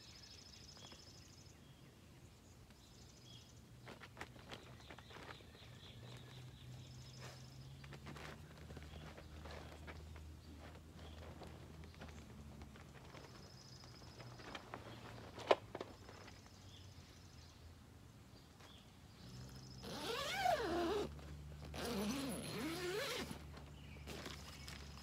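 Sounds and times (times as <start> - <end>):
tent zipper being pulled: 7.1 - 11.8, 19.2 - 24.6.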